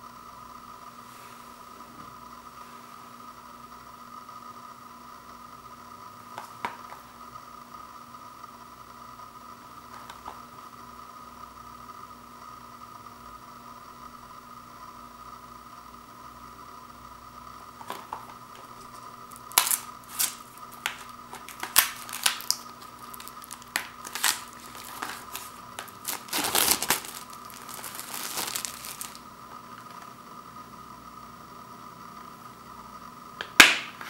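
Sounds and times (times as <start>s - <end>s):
faint steady hum: 0.0s - 34.0s
plastic shrink wrap crinkling: 17.8s - 30.1s.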